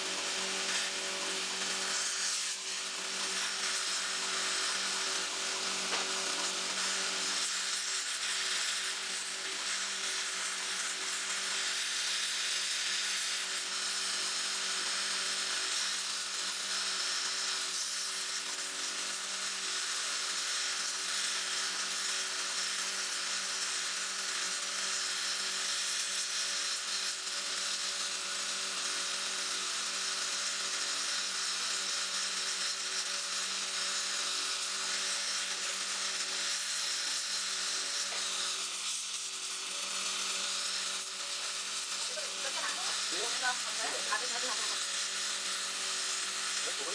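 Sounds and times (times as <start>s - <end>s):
torch flame hissing: 41.9s - 45.2s, 46.6s - 46.9s.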